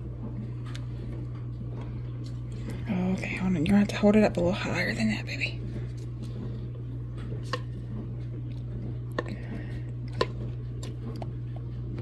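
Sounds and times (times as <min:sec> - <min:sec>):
steady low hum: 0:00.0 - 0:12.0
spatula scraping mixing bowl: 0:05.6 - 0:11.9.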